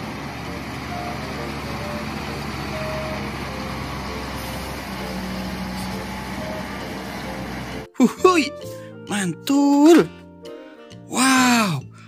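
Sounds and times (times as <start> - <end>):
diesel truck engine running: 0.0 - 7.9.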